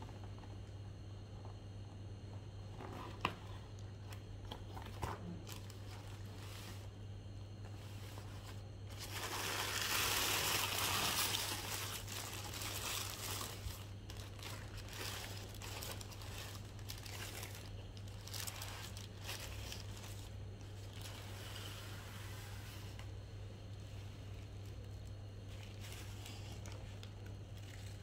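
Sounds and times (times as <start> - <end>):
tissue paper rustling and crinkling: 4.9 - 7.0, 7.7 - 23.0, 24.3 - 28.0.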